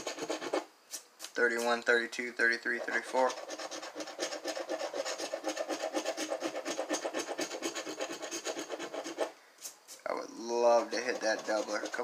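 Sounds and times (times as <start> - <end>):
scratching lottery ticket: 0.0 - 0.6, 2.7 - 9.3, 10.7 - 12.0.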